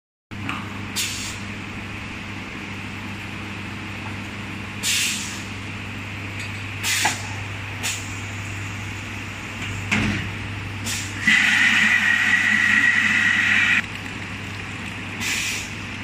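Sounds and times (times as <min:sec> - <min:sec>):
short air hisses: 0:01.0 - 0:01.4, 0:04.8 - 0:05.4, 0:10.8 - 0:13.8, 0:15.2 - 0:15.7
filling machine humming: 0:10.7 - 0:13.9.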